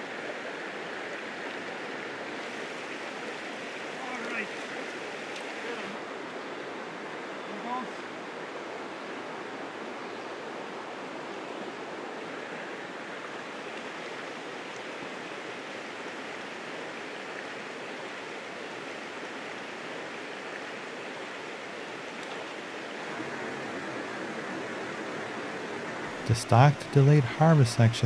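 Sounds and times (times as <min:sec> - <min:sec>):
stream water rushing: 0:00.0 - 0:28.0.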